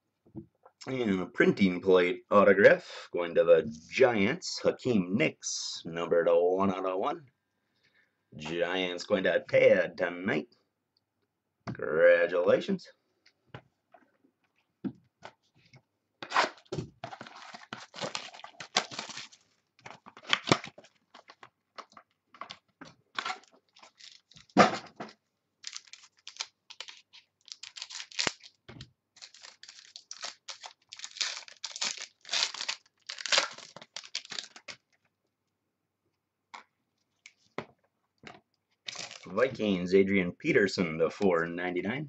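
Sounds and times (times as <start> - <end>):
card packs being torn open: 16.2 - 24.6, 25.6 - 34.8, 38.9 - 39.3
wrappers crinkling: 17.0 - 22.1, 23.2 - 24.6, 25.6 - 28.6, 29.2 - 34.8, 38.9 - 39.4.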